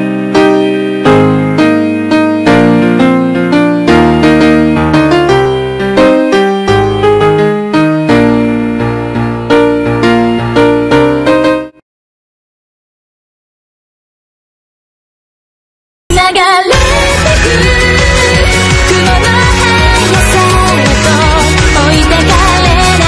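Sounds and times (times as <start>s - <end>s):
piano music: 0.0s - 11.8s, 16.7s - 23.0s.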